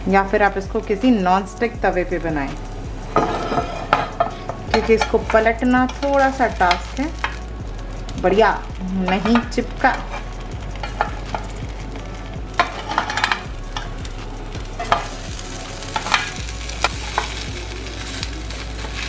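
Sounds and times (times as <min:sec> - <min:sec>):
bread sizzling on a grill pan: 0:00.5 - 0:19.0
metal spatula scraping and tapping: 0:03.1 - 0:07.4, 0:09.0 - 0:11.6, 0:12.6 - 0:13.9, 0:14.8 - 0:15.2, 0:16.0 - 0:17.4.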